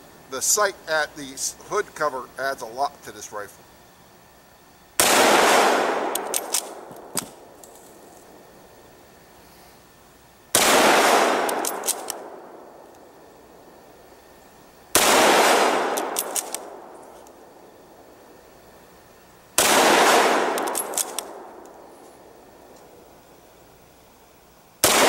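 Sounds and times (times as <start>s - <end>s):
rifle shots: 5.0s - 7.6s, 10.5s - 12.8s, 14.9s - 17.0s, 19.6s - 21.9s, 24.8s - 25.0s
rifle bolt clicks: 6.1s - 7.4s, 11.4s - 12.3s, 15.9s - 17.4s, 20.5s - 21.8s.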